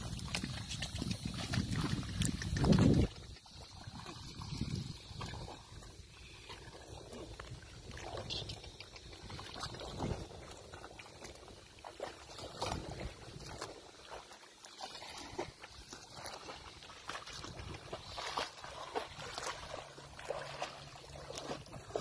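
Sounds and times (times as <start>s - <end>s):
muddy water sloshing and splashing: 0.0s - 22.0s.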